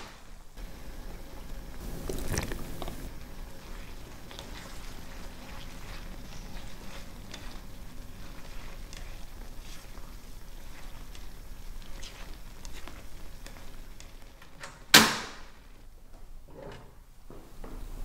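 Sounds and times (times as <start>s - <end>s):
faint hiss: 0.0s - 16.1s
small crackles and taps: 1.8s - 14.8s.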